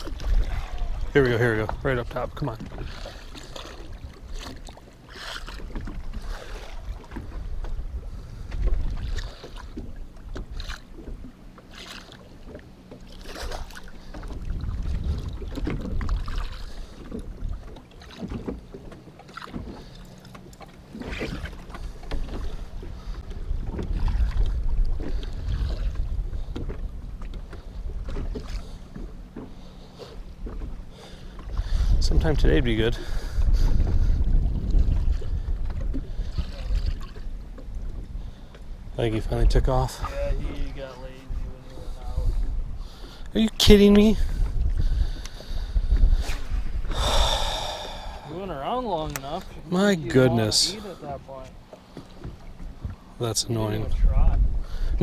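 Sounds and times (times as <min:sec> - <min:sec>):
wind on microphone: 0:00.0 - 0:04.5, 0:05.2 - 0:11.3, 0:13.5 - 0:18.5, 0:21.0 - 0:28.7, 0:31.4 - 0:49.6, 0:53.6 - 0:55.0
water sloshing against boat: 0:00.0 - 0:55.0.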